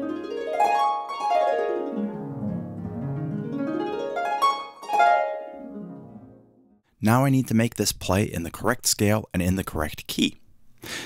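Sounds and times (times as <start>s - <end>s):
harp glissando: 0.0s - 6.8s.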